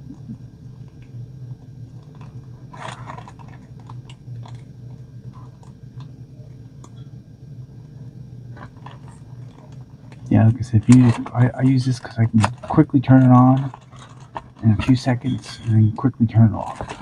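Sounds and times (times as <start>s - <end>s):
steady low hum: 0.0s - 17.0s
plastic bag crinkling: 8.6s - 16.0s.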